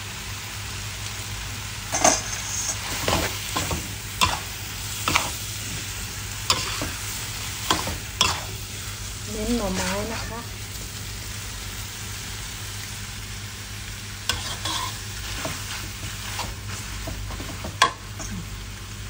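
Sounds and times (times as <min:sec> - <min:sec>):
food sizzling in pan: 0:00.0 - 0:19.0
metal spatula scraping wok: 0:01.9 - 0:05.9, 0:06.5 - 0:07.0, 0:07.6 - 0:08.6, 0:09.6 - 0:10.4, 0:14.3 - 0:17.6.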